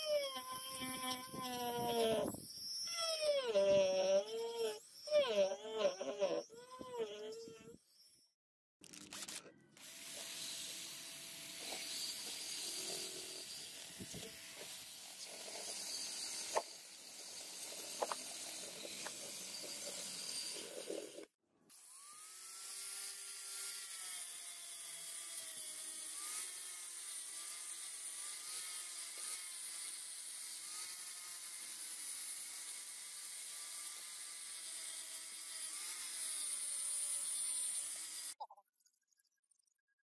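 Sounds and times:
sanding wheel whining on wood: 0.0 - 7.7, 9.8 - 21.3
drill grinding on brass: 0.0 - 8.2, 9.2 - 38.4.

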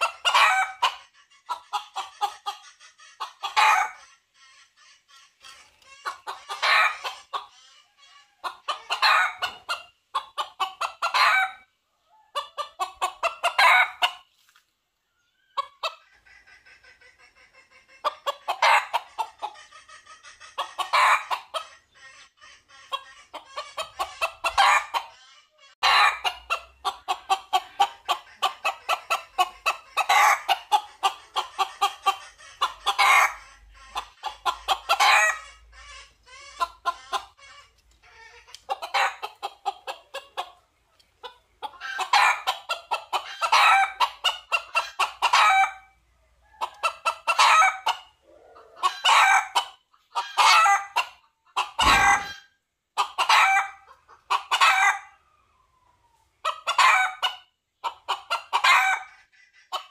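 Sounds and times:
hen clucking: 0.0 - 14.4, 15.0 - 59.9
rooster crowing: 51.8 - 52.4.

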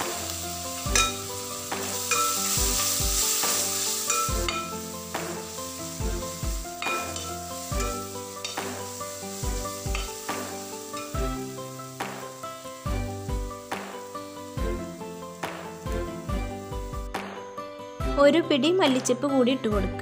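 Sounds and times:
onions sizzling in hot oil: 0.0 - 17.3
background music with steady beat: 0.0 - 20.0
metal spatula stirring in pot: 0.7 - 11.2.

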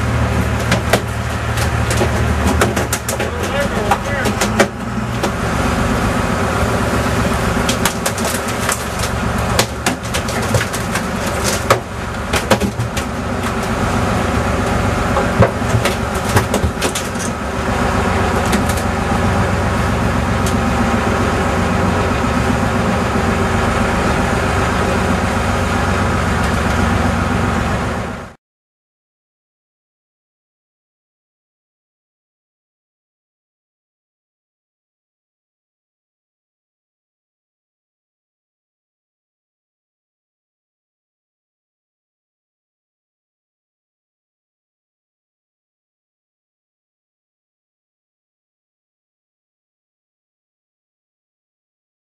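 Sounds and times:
boat engine running: 0.0 - 28.4.

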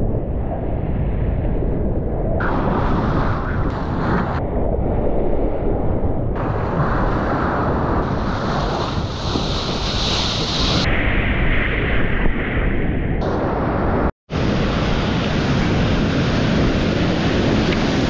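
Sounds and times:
wind buffeting microphone: 0.0 - 18.0
breaking surf: 6.4 - 10.9, 13.3 - 18.0
rushing seawater: 6.4 - 10.9, 14.3 - 18.0.

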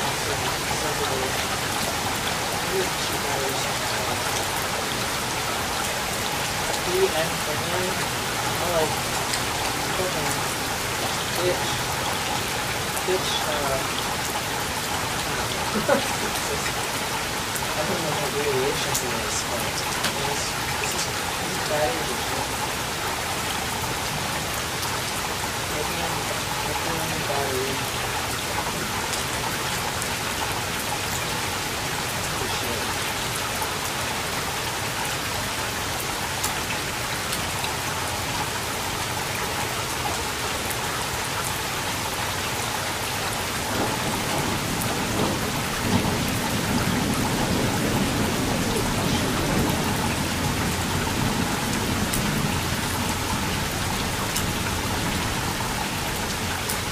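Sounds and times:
steady rain falling: 0.0 - 56.9
low rumble of thunder: 43.6 - 56.5.

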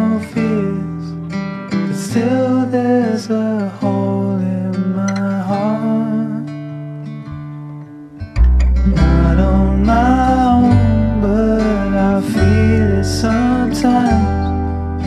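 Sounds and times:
song with guitar and singing: 0.0 - 15.0
low bass: 8.0 - 15.0.

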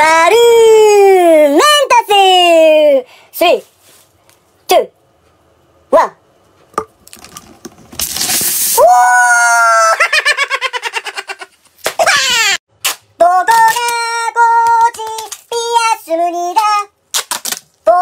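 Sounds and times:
burst of hiss: 8.3 - 8.8
high-pitched laughing squealing voice: 9.0 - 12.6.

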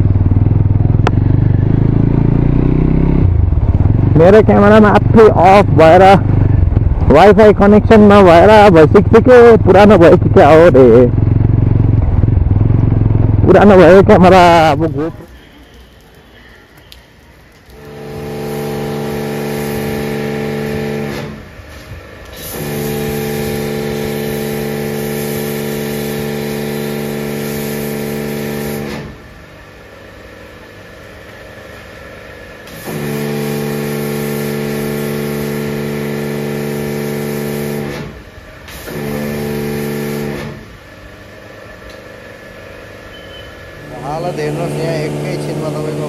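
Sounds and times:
pressure washer motor hum: 0.0 - 46.0
water spray hissing: 13.7 - 29.2, 32.7 - 40.6.

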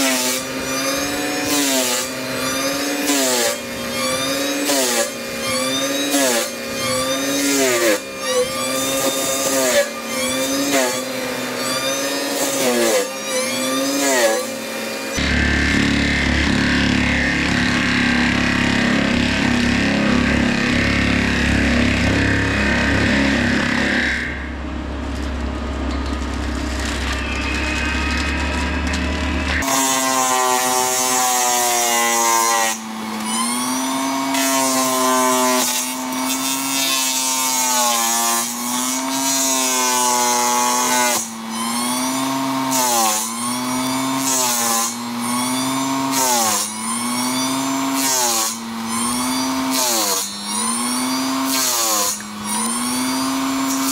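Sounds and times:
mulching head whine: 0.0 - 53.9
forestry mulcher engine rumble: 15.2 - 30.6.

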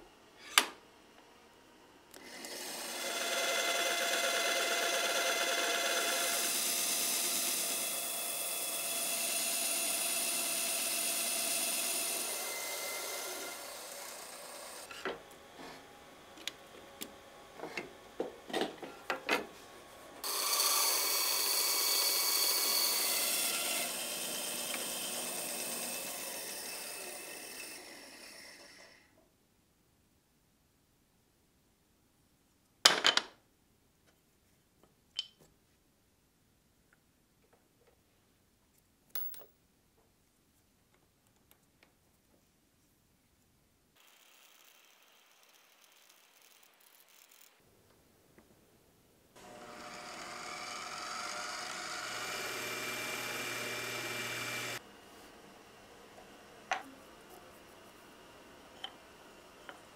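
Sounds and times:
band saw cutting wood: 2.2 - 15.0, 20.2 - 28.8, 49.4 - 54.8.

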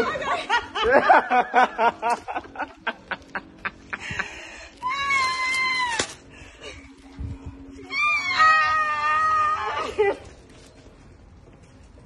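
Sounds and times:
woman laughing: 0.0 - 4.2.

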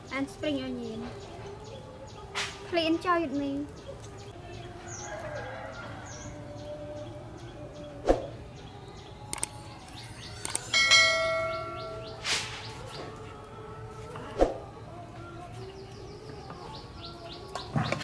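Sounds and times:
birds chirping: 0.0 - 18.0
notification bell ding: 10.7 - 12.1
short whoosh: 12.2 - 12.7.

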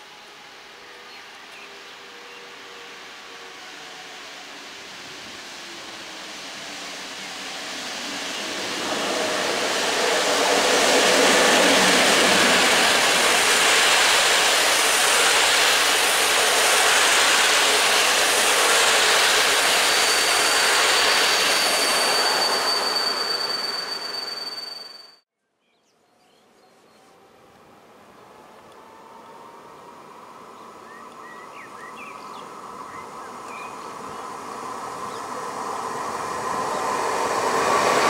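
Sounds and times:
train wheels rushing on rails: 0.0 - 25.0, 31.2 - 38.0
high wheel squeal: 2.7 - 25.2.

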